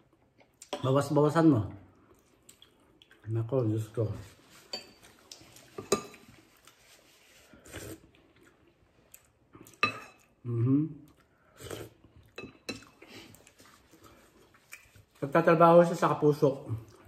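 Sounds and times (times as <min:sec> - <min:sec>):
person humming: 0:10.4 - 0:11.0.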